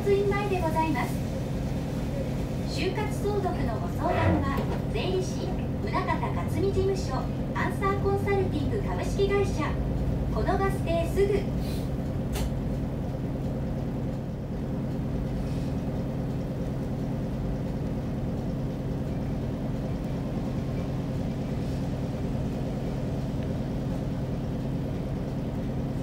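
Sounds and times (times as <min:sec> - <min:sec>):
bus diesel engine humming: 0:00.0 - 0:26.0
road and cabin noise: 0:00.0 - 0:26.0.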